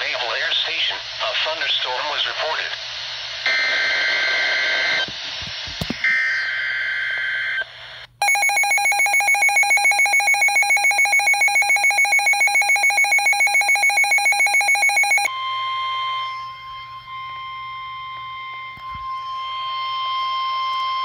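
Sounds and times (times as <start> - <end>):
data burst tones: 8.2 - 21.0
shrill pulsing alert beeps: 8.2 - 21.0
steady warning alarm tone: 8.2 - 21.0.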